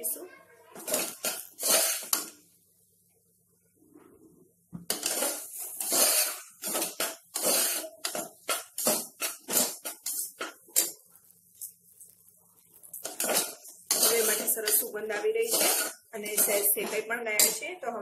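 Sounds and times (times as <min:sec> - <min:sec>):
steel spoon scraping metal pot: 0:00.8 - 0:02.3, 0:04.9 - 0:11.0, 0:12.8 - 0:17.6.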